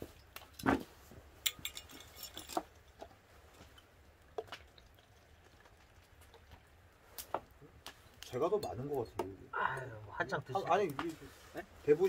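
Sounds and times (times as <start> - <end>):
glass clinks: 1.4 - 2.6.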